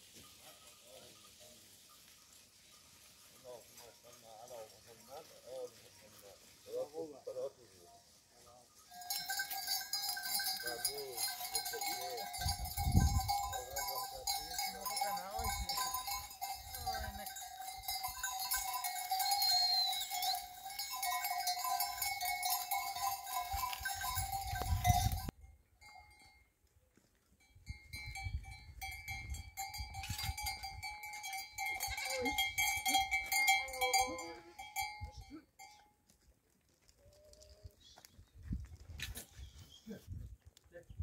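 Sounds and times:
animal neck bells clanking: 2.5s - 7.5s, 8.6s - 36.4s.

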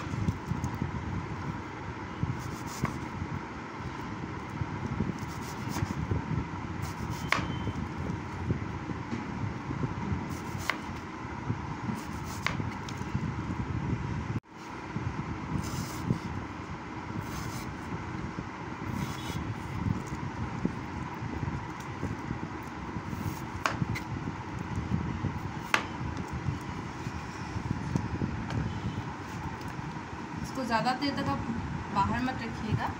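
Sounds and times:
knife slicing an apple: 2.3s - 3.1s, 5.1s - 6.0s, 6.8s - 7.6s, 10.3s - 11.0s, 11.9s - 13.0s, 18.9s - 19.4s, 23.1s - 24.1s.

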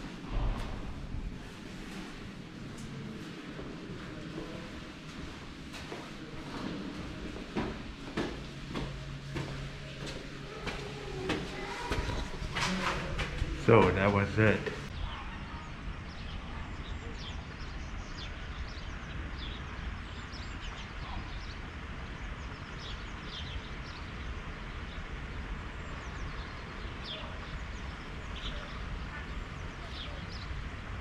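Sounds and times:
low outdoor rumble: 0.0s - 31.0s
small birds chirping: 8.2s - 30.9s.

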